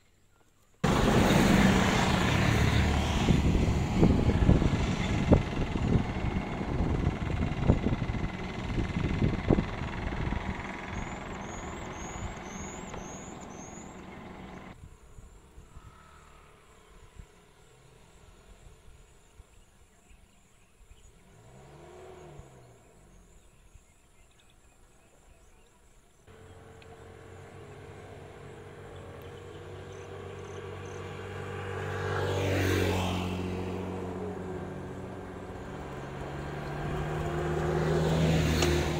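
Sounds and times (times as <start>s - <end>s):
engine running steadily: 0.8s - 14.8s, 26.3s - 32.5s, 33.3s - 38.9s
road vehicles passing: 0.8s - 19.3s, 21.0s - 23.6s, 26.3s - 38.9s.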